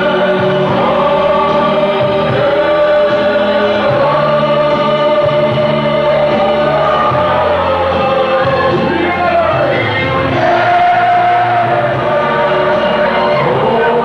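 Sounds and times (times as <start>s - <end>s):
many voices singing together: 0.0s - 14.0s.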